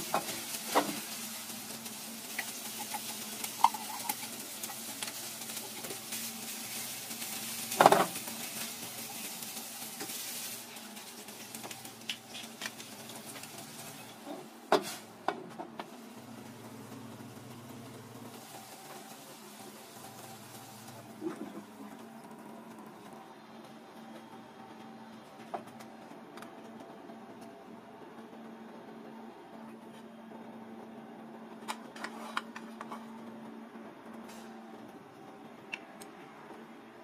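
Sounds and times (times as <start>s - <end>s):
crab meat sizzling in oil: 0.0s - 15.2s, 15.9s - 21.3s.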